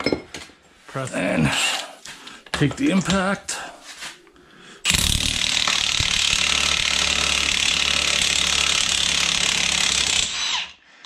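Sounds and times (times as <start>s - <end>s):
impact wrench hammering: 4.9s - 10.4s.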